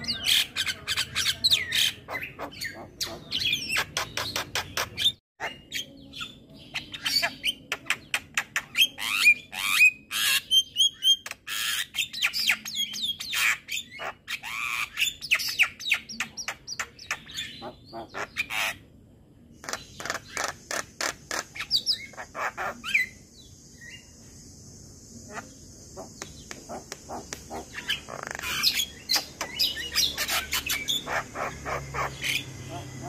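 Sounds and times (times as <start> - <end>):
steady high hiss: 23.2 - 29.8.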